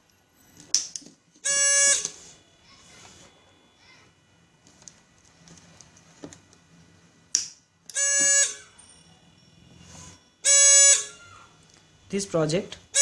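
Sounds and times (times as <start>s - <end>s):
gas alarm buzzer beeping: 1.4s - 2.4s, 7.9s - 11.3s.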